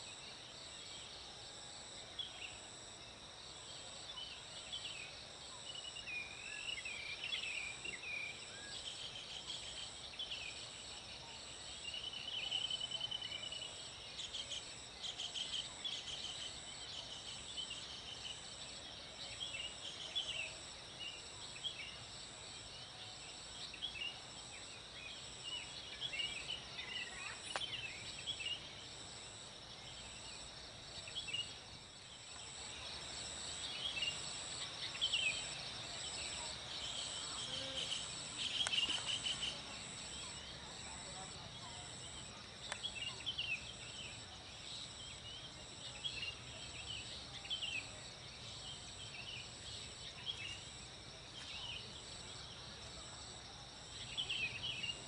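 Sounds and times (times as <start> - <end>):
high insect drone: 13.2 - 55.0.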